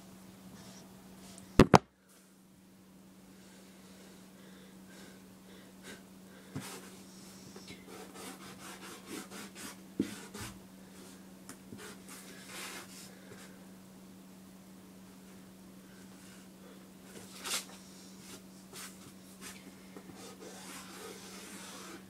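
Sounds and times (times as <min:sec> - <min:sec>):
steady low hum: 0:00.0 - 0:22.0
marker strokes on paper: 0:20.2 - 0:22.0.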